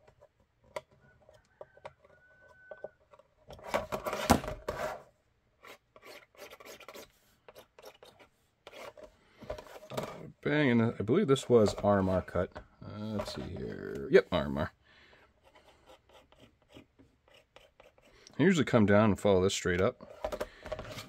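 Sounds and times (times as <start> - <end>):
pencil scratching: 5.6 - 9.9, 10.8 - 12.4, 15.2 - 18.5
hands rubbing plastic shell: 5.6 - 14.1.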